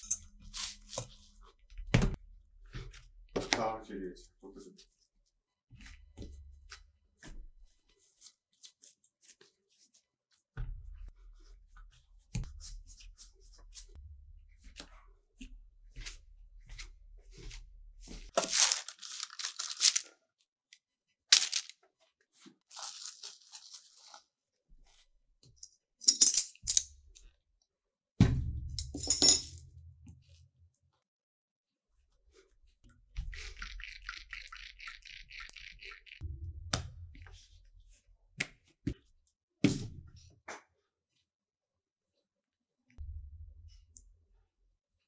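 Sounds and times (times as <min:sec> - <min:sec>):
rustling crinkling bursts: 0:18.4 - 0:20.1, 0:21.4 - 0:21.7, 0:22.7 - 0:24.2.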